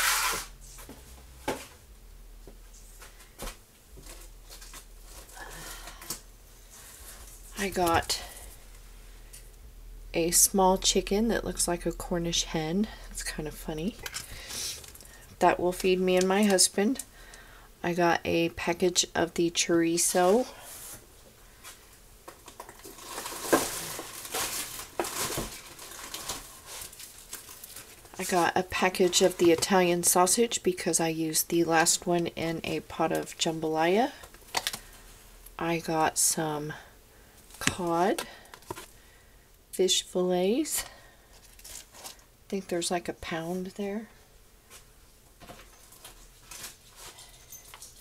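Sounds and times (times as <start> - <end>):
groceries knocking and clicking: 22.2 - 29.9
packaging rustle: 22.3 - 28.2, 41.4 - 42.3, 45.6 - 48.0.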